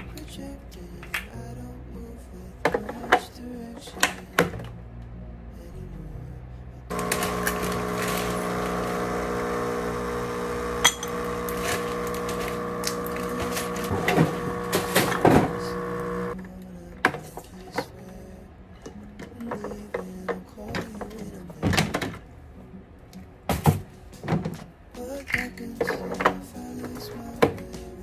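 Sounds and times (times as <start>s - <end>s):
steady machine hum: 6.9s - 16.4s.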